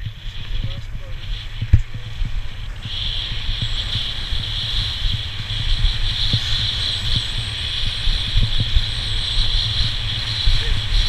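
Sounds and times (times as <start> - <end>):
skis sliding over snow: 0.0 - 11.0
wind buffeting microphone: 0.0 - 11.0.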